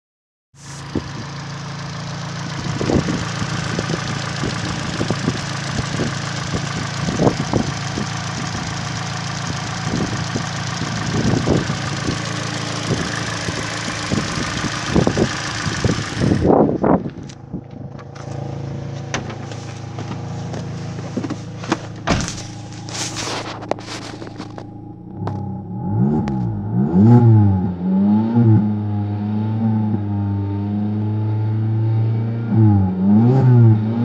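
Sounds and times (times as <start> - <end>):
car engine idling: 0.6 - 28.0
low rumbles on microphone: 10.0 - 27.8.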